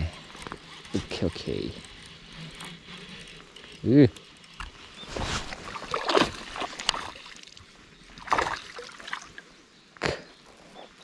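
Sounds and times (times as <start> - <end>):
water splashing: 5.1 - 9.5.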